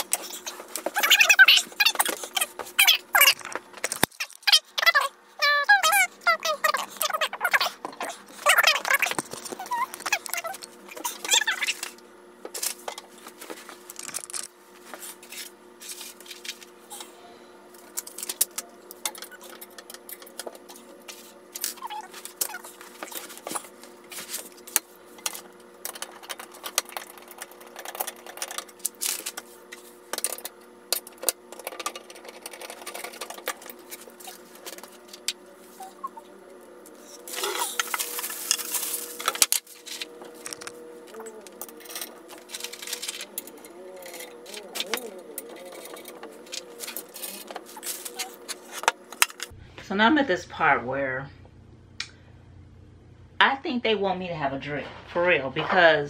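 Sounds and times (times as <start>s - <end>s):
faint steady hum: 0.0s - 56.0s
metal parts clicking and rattling: 13.9s - 14.5s, 41.6s - 49.5s.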